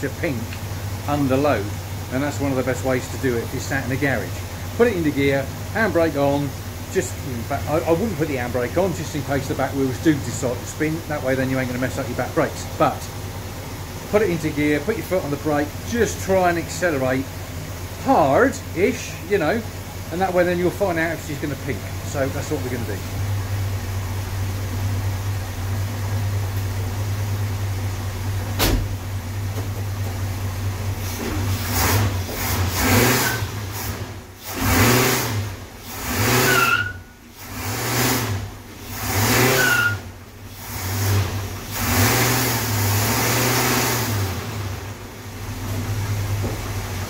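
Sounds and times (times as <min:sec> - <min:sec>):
engine idling: 0:00.0 - 0:47.0
engine revving hard: 0:31.0 - 0:45.0.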